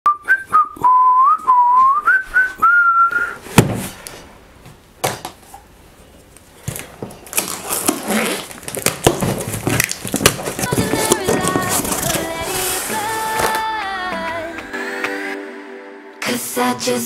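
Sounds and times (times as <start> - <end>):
person whistling a tune: 0.1 - 3.4
knife slitting packing tape: 6.8 - 13.5
cardboard box set down: 9.1 - 13.7.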